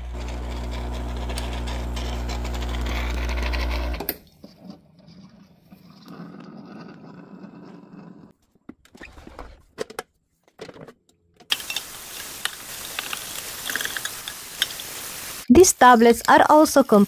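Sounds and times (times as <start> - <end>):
espresso machine pump humming: 0.0 - 4.1.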